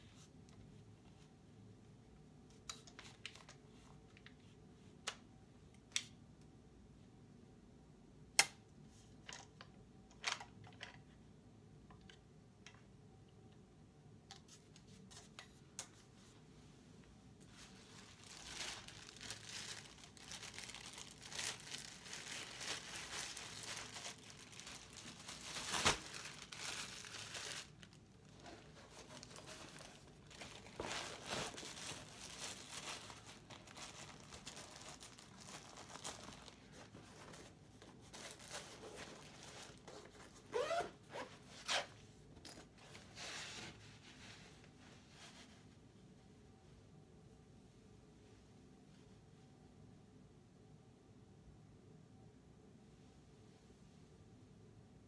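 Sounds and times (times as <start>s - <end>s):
plastic bag crinkling: 17.6s - 40.8s.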